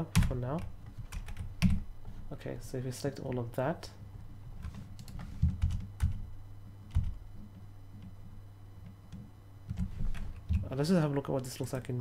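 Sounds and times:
steady low hum: 0.0 - 12.0
keyboard keys tapping: 4.6 - 6.2, 6.9 - 7.2.

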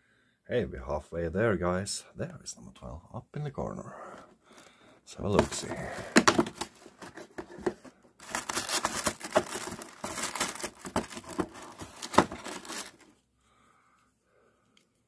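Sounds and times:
cardboard and plastic packaging tearing: 5.4 - 13.1.

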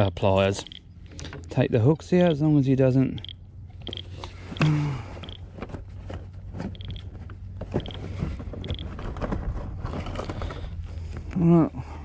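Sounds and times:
person grunting: 4.6 - 5.2.

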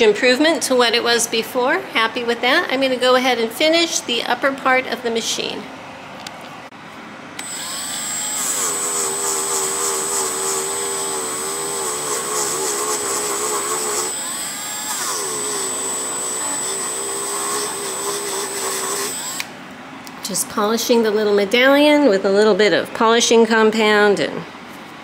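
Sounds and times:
rotary tool polishing whine: 7.4 - 19.5.

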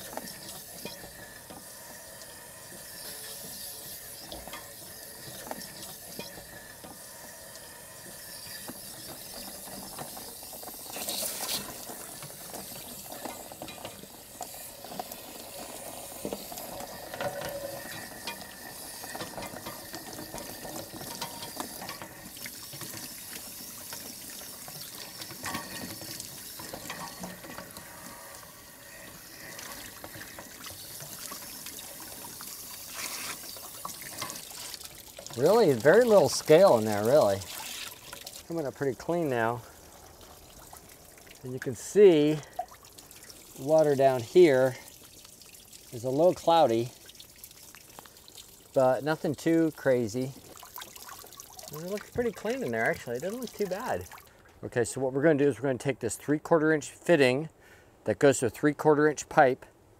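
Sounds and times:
water rushing and splashing: 10.9 - 54.3.

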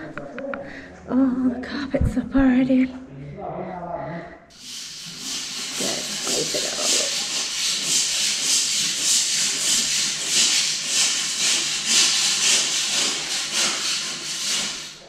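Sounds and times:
scraping strokes on floor: 4.5 - 15.0.

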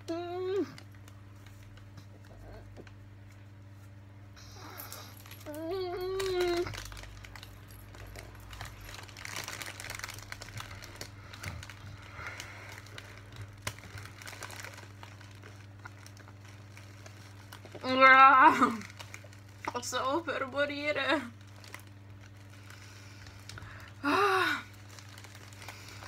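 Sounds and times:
paper towel crinkling: 5.7 - 26.0.

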